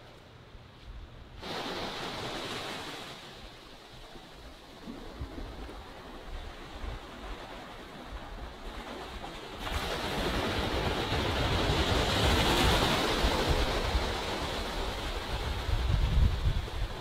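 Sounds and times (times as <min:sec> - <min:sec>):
waves washing onto beach: 0:01.4 - 0:17.0
wind rumbling on microphone: 0:04.1 - 0:17.0.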